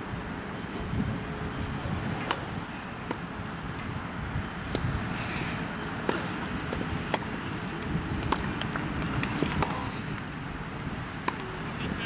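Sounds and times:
tennis balls struck by rackets: 2.2s - 3.9s, 4.6s - 5.0s, 5.8s - 11.8s.

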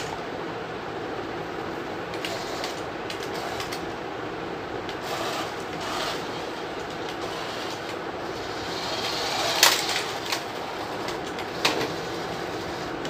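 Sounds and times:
sharp plastic clicks: 2.1s - 3.8s
toy vehicle motor running: 5.0s - 6.4s, 7.2s - 10.4s.

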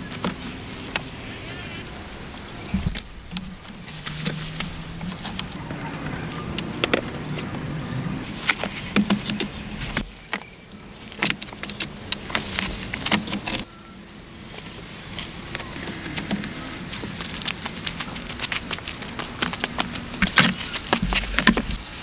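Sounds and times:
low steady hum: 0.0s - 22.0s
wood clicking and knocking: 16.0s - 21.8s.

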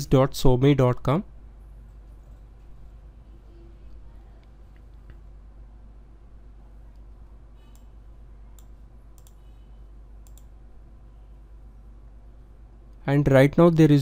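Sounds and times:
faint low hum: 0.0s - 14.0s
computer mouse clicking: 8.6s - 9.4s, 10.2s - 10.5s.

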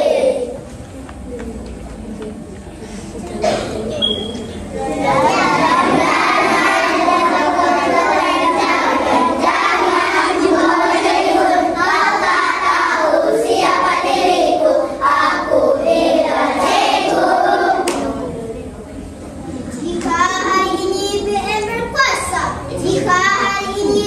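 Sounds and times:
children's choir singing: 0.0s - 0.6s, 4.8s - 18.5s.

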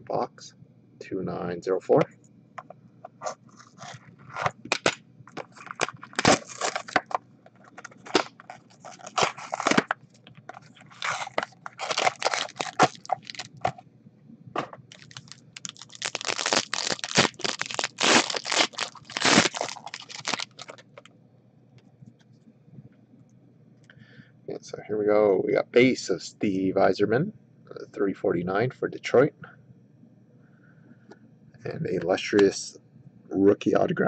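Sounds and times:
foil wrapper tearing and crinkling: 3.6s - 13.7s, 14.9s - 21.1s.

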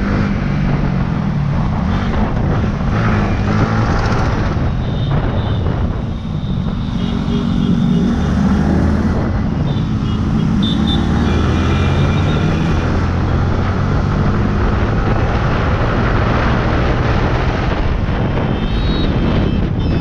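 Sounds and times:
motorcycle engine accelerating: 6.8s - 19.5s.

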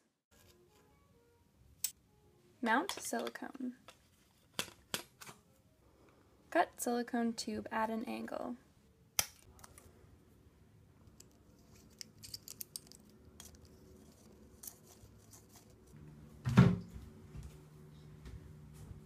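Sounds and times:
thump: 16.4s - 16.9s.

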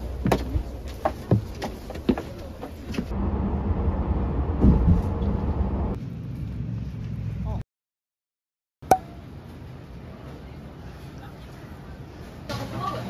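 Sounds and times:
footsteps on bus steps: 0.0s - 3.1s
bus driving drone inside cabin: 1.8s - 7.6s.

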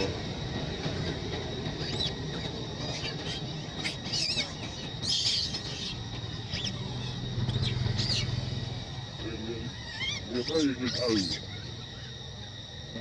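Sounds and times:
outdoor background noise: 0.0s - 13.0s
animal chirps and squeaks: 1.8s - 8.6s, 9.7s - 12.2s.

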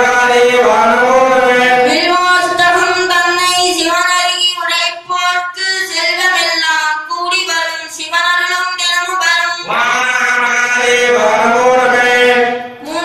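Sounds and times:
lower voice singing: 0.0s - 3.0s
high voice singing a chant: 0.0s - 13.0s.

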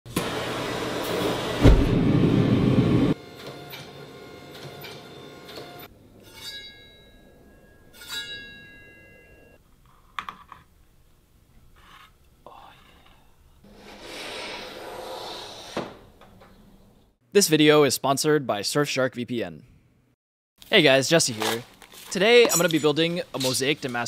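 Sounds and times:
heavy thump: 1.6s - 2.4s
cleaver blade ringing: 6.2s - 9.6s.

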